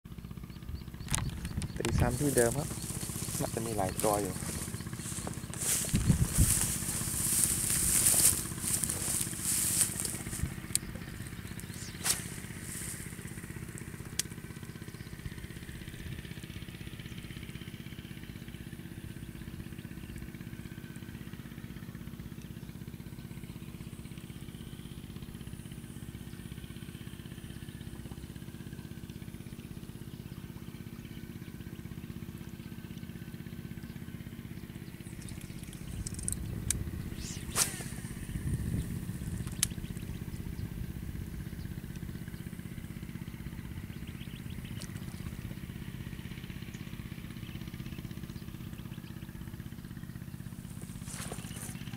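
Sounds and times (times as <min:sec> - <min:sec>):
small engine running: 0:00.1 - 0:51.9
sharp clicks: 0:35.2 - 0:38.2, 0:39.3 - 0:40.1.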